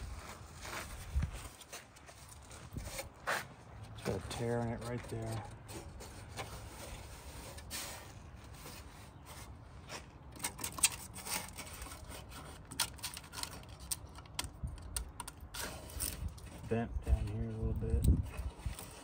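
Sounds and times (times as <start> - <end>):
rubbing and scraping: 0.0 - 14.5, 15.3 - 19.0
small clicks and knocks: 12.6 - 16.5.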